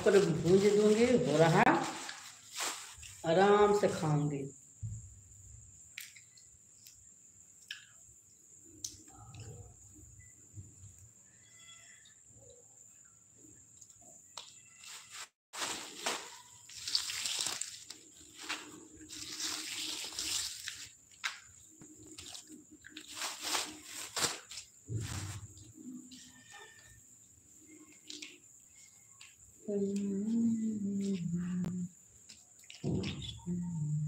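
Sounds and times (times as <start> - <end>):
plastic bag rustling: 0.0 - 3.4, 14.8 - 25.9.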